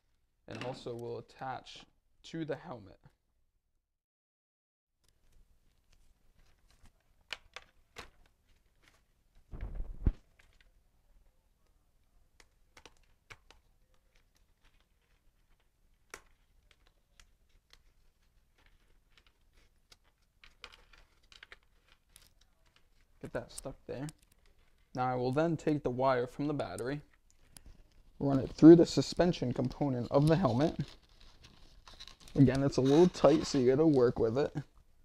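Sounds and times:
thump: 9.5s - 10.2s.

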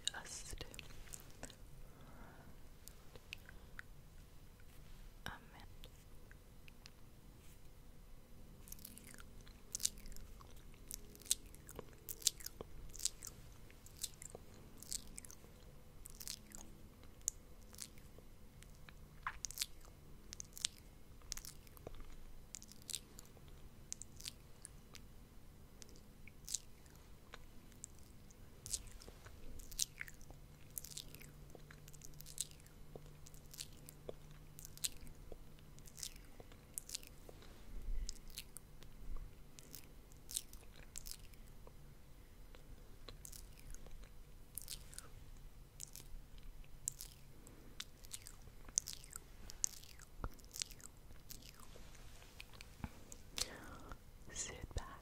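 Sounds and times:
mouth clicks and lip smacks: 18.6s - 23.3s, 42.5s - 45.1s.

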